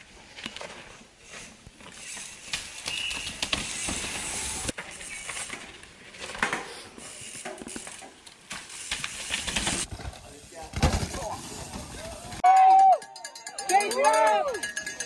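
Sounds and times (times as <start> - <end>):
bike tyres scrubbing over dirt: 0.1 - 12.4
bike chain rattling: 7.0 - 15.0.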